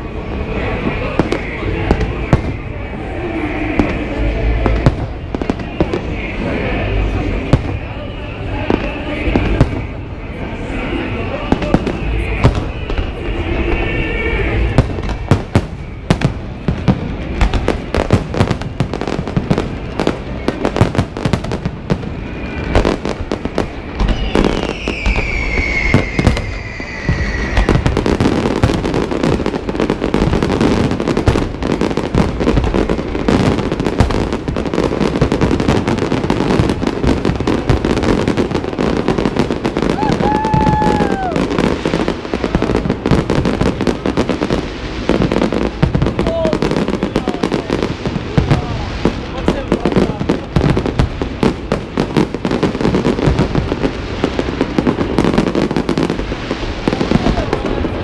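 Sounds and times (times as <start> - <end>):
fireworks bursts and crackle: 0.0 - 58.0
falling firework whistle: 22.1 - 31.1, 36.3 - 43.2.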